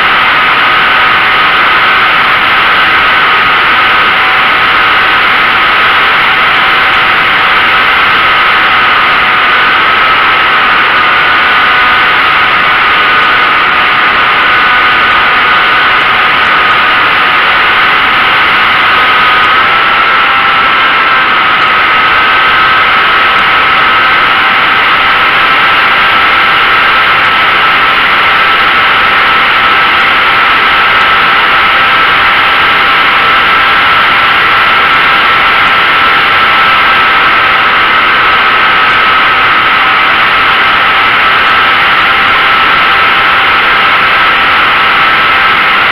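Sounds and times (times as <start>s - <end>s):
model plane motor whine: 0.0s - 45.9s.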